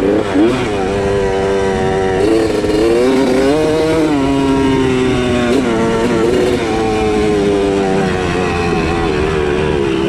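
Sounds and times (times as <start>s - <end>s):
dirt bike engine running: 0.0s - 10.0s.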